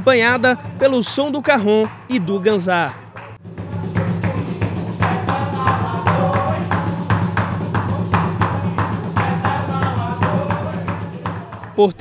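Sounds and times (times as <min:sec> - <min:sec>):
shaker: 0:03.1 - 0:11.8
box drum slapped by hand: 0:03.2 - 0:11.8.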